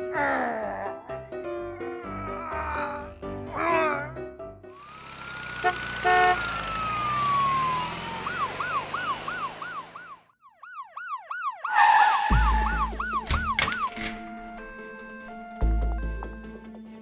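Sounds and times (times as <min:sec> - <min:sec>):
ambulance siren wail and yelp: 0:05.6 - 0:16.4.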